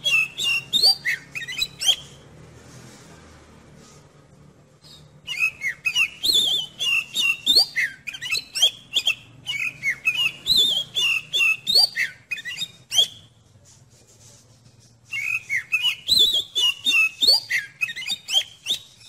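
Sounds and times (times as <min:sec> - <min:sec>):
bird singing whistled notes: 0:00.0 - 0:02.3, 0:04.8 - 0:13.4, 0:15.1 - 0:19.0.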